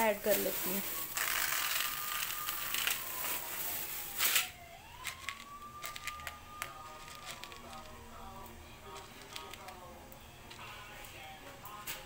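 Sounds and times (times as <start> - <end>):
lentils pouring into plastic bowl: 0.0 - 8.0
hands clicking through grains: 0.3 - 3.4, 4.1 - 8.0.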